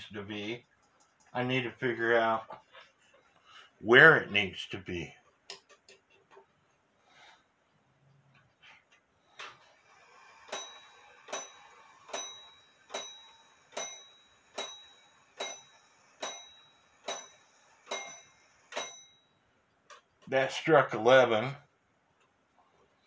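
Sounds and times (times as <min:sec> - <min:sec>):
clock striking on gong: 0:10.5 - 0:19.2.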